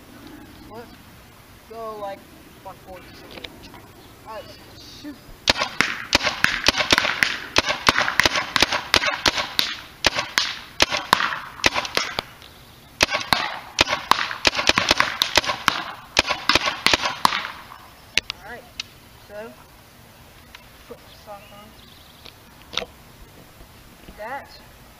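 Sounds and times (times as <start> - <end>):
paintball marker firing: 5.5 - 12.3, 13.0 - 18.3.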